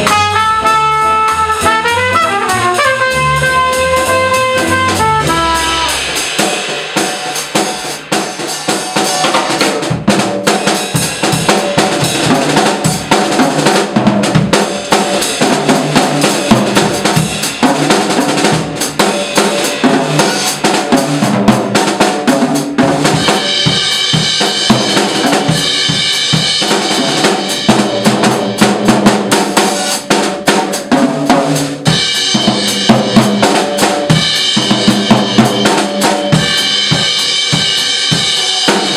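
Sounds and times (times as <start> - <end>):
electric keyboard: 0.0 - 6.1
upright bass: 0.0 - 6.3
held trumpet note: 0.0 - 6.4
jazz drum kit swing playing: 0.0 - 38.9.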